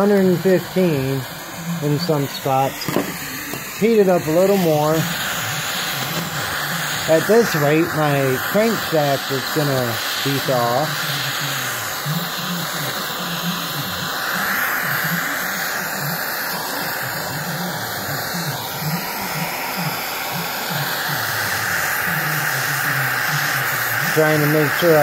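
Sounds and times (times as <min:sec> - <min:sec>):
propane torch hissing: 0:00.0 - 0:25.0.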